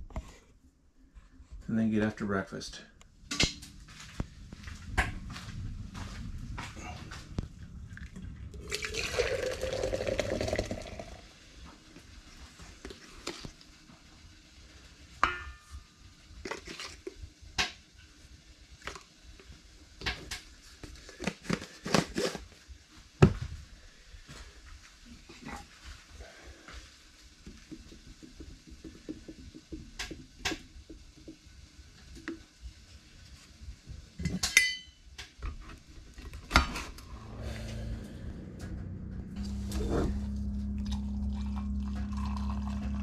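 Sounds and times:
wooden stick scraping grounds: 3.2 - 8.6, 36.7 - 42.0
water pouring: 7.6 - 11.6, 40.8 - 43.0.

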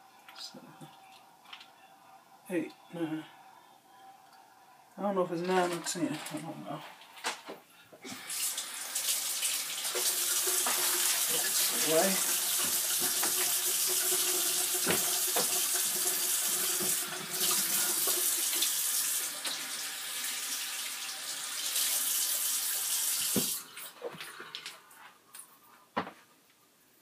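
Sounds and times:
faucet running into sink: 8.1 - 23.8.

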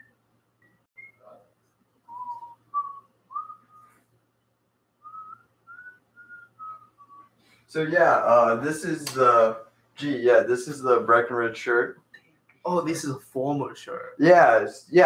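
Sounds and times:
man whistling a tune: 0.0 - 1.3, 2.1 - 4.0, 5.0 - 7.3.

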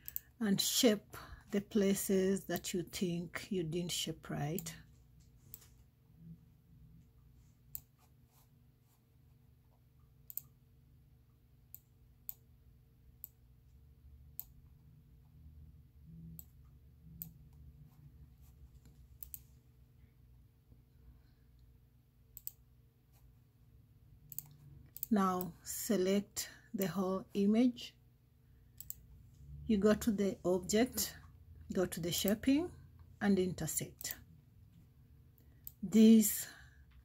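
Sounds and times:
computer mouse clicks: 0.0 - 0.4, 4.5 - 4.8, 7.7 - 8.0, 10.2 - 10.6, 11.7 - 12.4, 14.3 - 14.6, 16.3 - 17.6, 18.8 - 19.5, 22.3 - 22.6, 24.3 - 25.5, 28.8 - 29.1
faint low hum: 0.0 - 37.0.

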